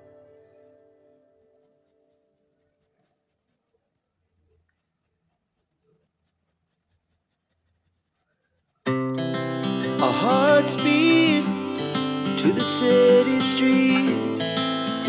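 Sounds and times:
background music: 0:00.0 - 0:01.7, 0:08.9 - 0:15.0
pencil scratching on paper: 0:00.8 - 0:09.0.

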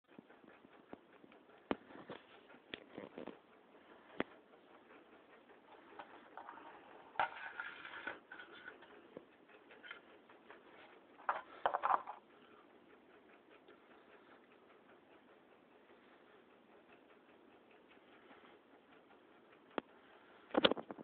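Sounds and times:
knocking and rustling: 0:11.2 - 0:12.2.

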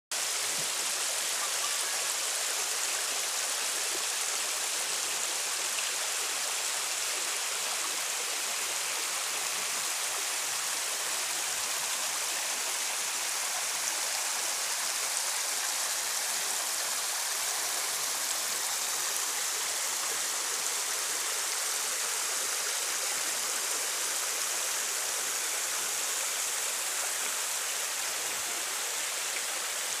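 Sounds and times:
trickling waterfall: 0:00.1 - 0:30.0.

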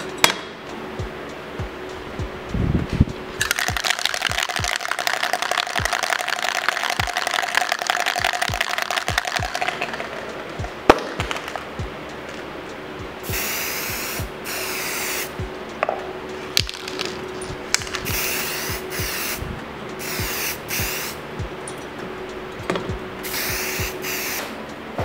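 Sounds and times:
aerosol spray can hissing: 0:03.4 - 0:10.3, 0:13.2 - 0:15.4, 0:17.8 - 0:19.4, 0:20.0 - 0:21.2, 0:23.2 - 0:24.6.

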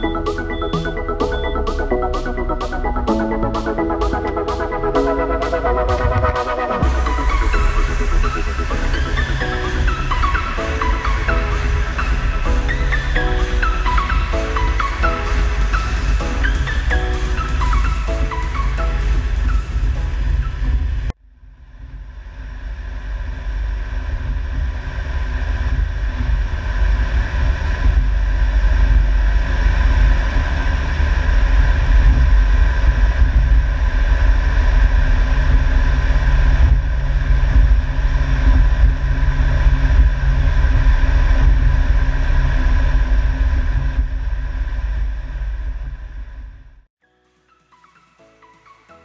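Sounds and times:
tractor engine drone: 0:00.0 - 0:21.2
high engine whine: 0:00.0 - 0:46.6.

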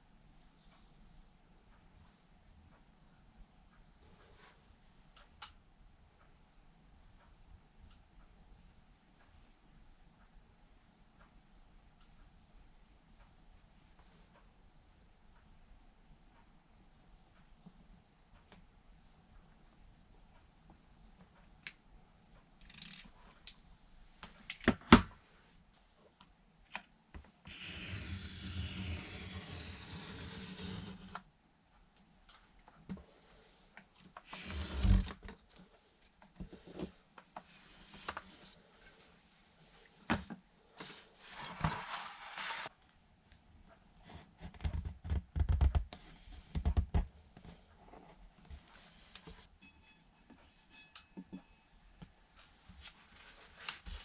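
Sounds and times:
knife scraping sheet material: 0:27.5 - 0:31.2, 0:41.2 - 0:42.7.

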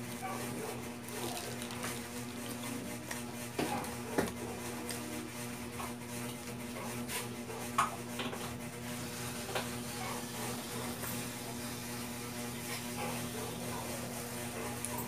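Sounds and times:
person chewing food: 0:01.0 - 0:05.0.

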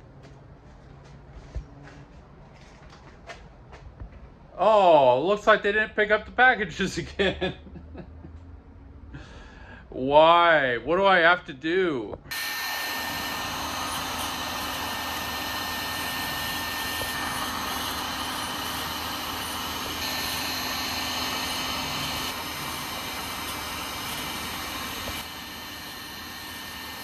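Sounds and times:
heat gun blowing air: 0:12.3 - 0:27.0.

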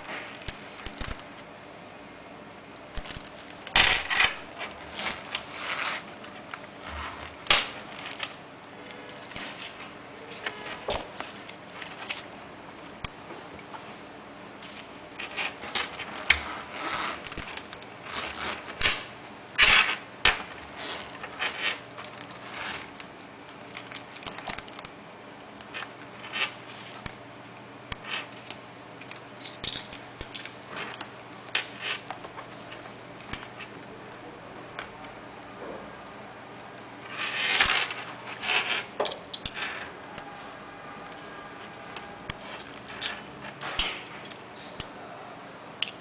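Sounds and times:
bag rustling and scraping: 0:04.1 - 0:08.4, 0:15.2 - 0:18.8, 0:20.4 - 0:22.9, 0:37.1 - 0:39.0.

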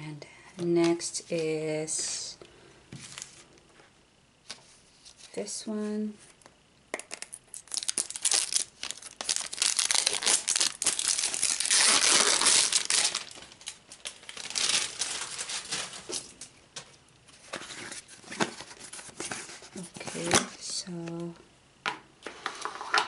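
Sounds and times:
plastic packaging crinkling and tearing: 0:07.2 - 0:16.5.

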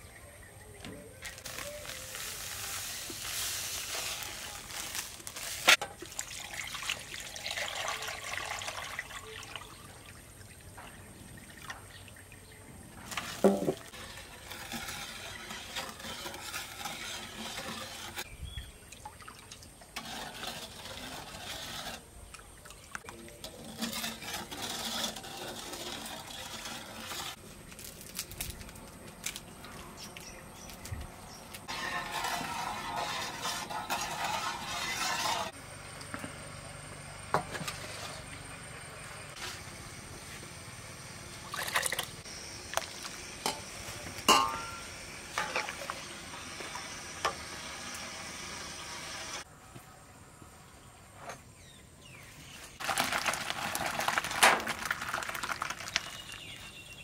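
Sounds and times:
liquid pouring and splashing: 0:04.5 - 0:10.2, 0:52.8 - 0:56.6.

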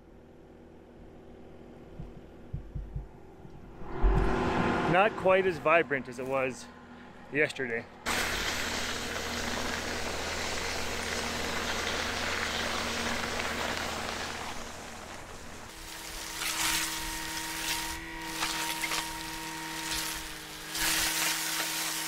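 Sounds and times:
loader engine running: 0:08.0 - 0:16.3.

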